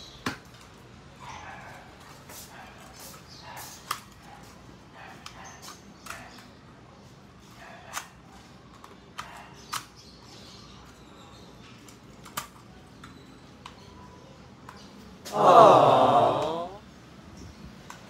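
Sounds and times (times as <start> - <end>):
faint steady background noise: 0.0 - 18.0.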